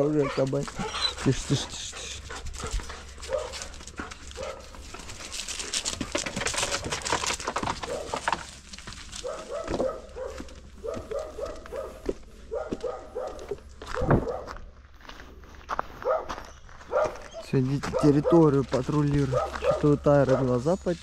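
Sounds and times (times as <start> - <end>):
dogs yipping and whining: 0.0 - 4.6, 16.0 - 18.4.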